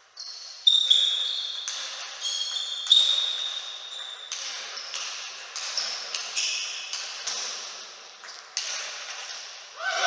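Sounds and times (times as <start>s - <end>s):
ping pong ball hit by rackets: 0.8s - 10.0s
ball bouncing on table: 1.6s - 7.6s.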